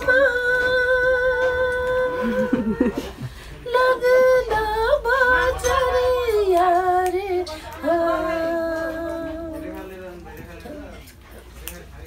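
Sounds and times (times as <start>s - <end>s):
women singing unaccompanied: 0.0s - 3.0s, 3.6s - 9.8s.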